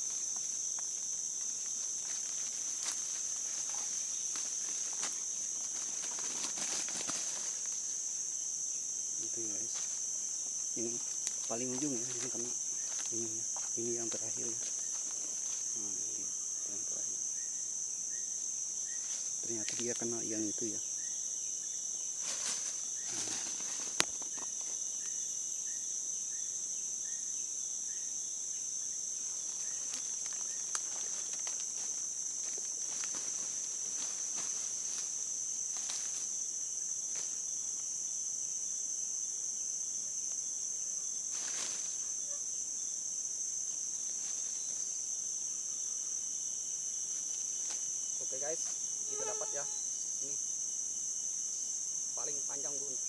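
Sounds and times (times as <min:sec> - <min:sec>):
leaves rustling: 0:00.0 - 0:16.8, 0:18.8 - 0:20.7, 0:22.0 - 0:24.9, 0:29.2 - 0:37.9, 0:41.1 - 0:42.4, 0:43.5 - 0:45.4
insects chorus: 0:00.0 - 0:53.0.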